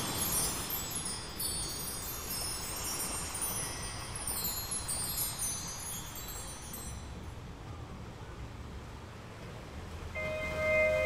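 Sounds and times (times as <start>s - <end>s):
soft steady ambient wash: 0.0s - 11.0s.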